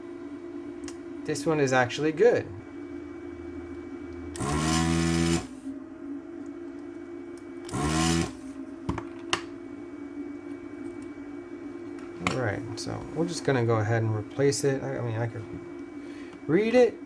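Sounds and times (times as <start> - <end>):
desoldering vacuum pump bursts: 4.3 - 5.6, 7.7 - 8.5.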